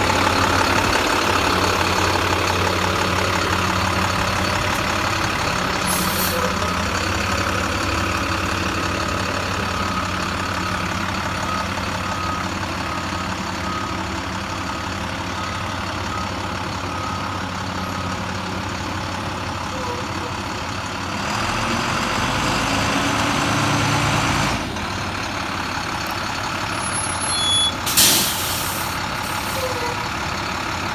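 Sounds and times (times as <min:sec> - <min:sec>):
diesel bus engine idling: 0:00.0 - 0:30.9
air brake hiss: 0:05.8 - 0:06.5, 0:27.9 - 0:29.8
short high beeps: 0:26.8 - 0:27.8.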